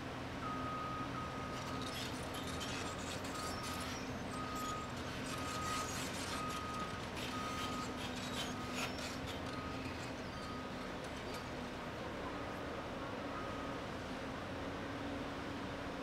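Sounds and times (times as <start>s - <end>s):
diesel engine running: 0.1s - 15.7s
knocks and scrapes of dirt and steel: 1.3s - 11.8s.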